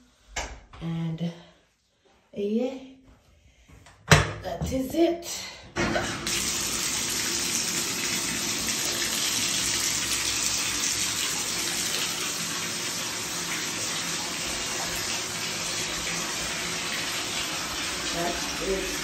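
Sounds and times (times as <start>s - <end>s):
water running into bathtub: 5.8s - 19.0s.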